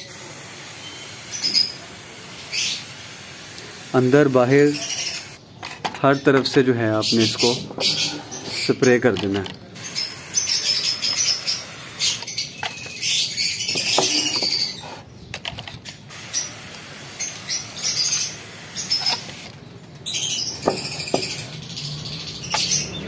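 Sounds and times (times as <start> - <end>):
spray bottle hissing mist: 0.0 - 5.4, 9.8 - 15.0, 16.1 - 23.0.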